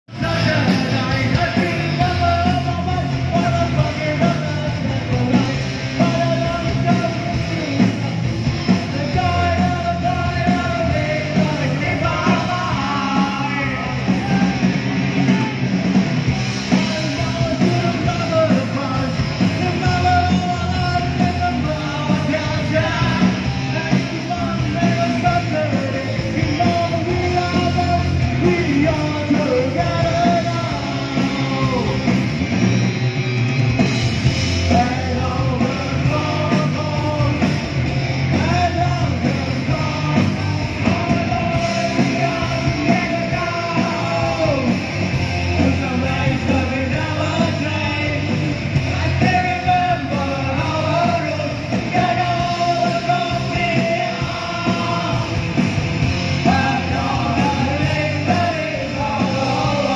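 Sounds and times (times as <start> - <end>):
electric guitars: 0.0 - 59.9
singer shouting into microphone: 8.9 - 15.8.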